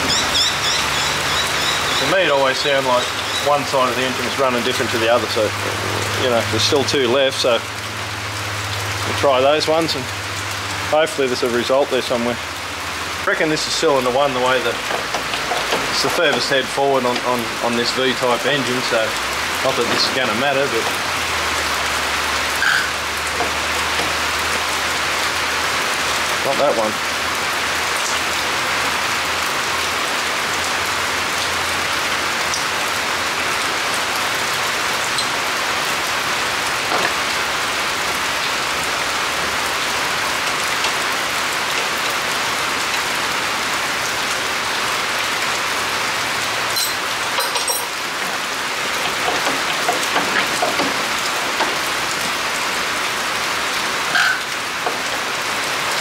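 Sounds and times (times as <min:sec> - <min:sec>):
steady rain: 0:00.0 - 0:56.0
light clicks and knocks: 0:14.8 - 0:17.4, 0:36.9 - 0:37.2, 0:49.0 - 0:51.9.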